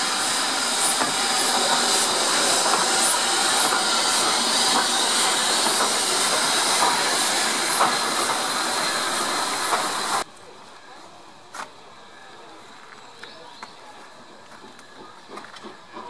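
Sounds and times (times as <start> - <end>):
steam hissing: 0.0 - 10.2.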